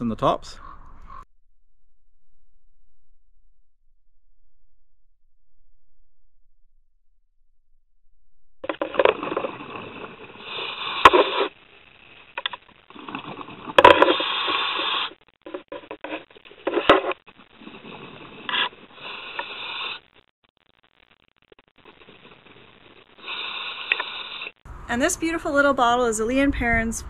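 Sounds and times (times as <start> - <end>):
diver breathing through regulator: 9.3 - 11.5, 12.9 - 15.2, 17.6 - 20.0, 23.2 - 24.6.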